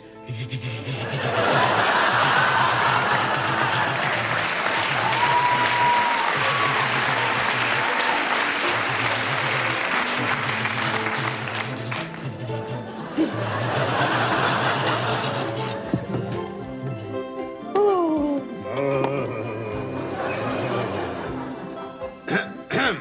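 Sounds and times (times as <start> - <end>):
background music: 0.0 - 23.0
audience applause: 1.5 - 15.7.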